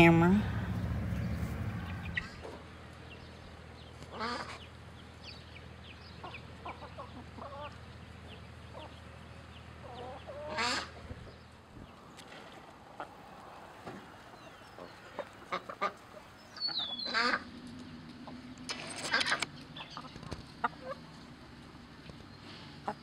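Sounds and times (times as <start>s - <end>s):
chickens clucking: 0.7s - 2.6s, 6.2s - 9.0s, 9.6s - 17.5s, 19.1s - 21.3s, 22.8s - 23.0s
chicken squawking: 9.9s - 11.0s, 14.8s - 17.4s.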